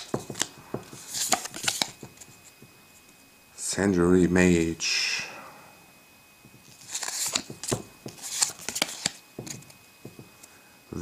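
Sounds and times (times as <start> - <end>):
trading cards flicking: 0.0 - 2.2, 6.8 - 9.8.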